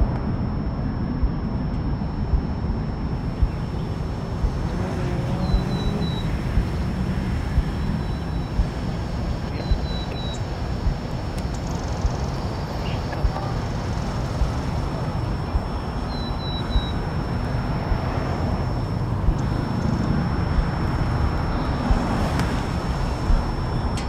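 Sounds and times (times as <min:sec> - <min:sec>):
distant traffic rumble: 0:00.0 - 0:24.0
high bird chirps: 0:09.5 - 0:10.6, 0:16.0 - 0:17.0.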